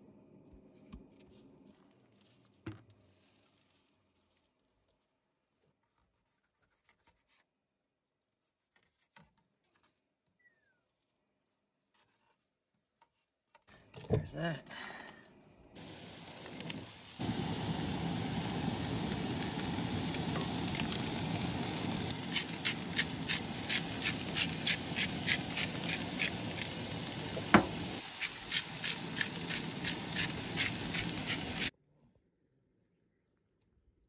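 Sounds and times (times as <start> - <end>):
sharp crackling pops: 15.8 - 31.7
vegetables sizzling in oil: 15.8 - 31.7.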